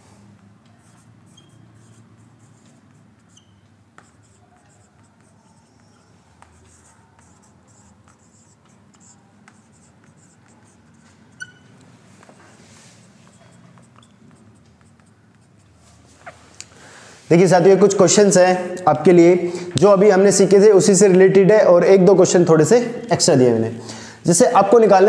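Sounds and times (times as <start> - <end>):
marker writing on whiteboard: 0.3 - 16.6
marker tapping: 0.4 - 12.5, 13.2 - 16.0
marker squeak: 0.7 - 16.6.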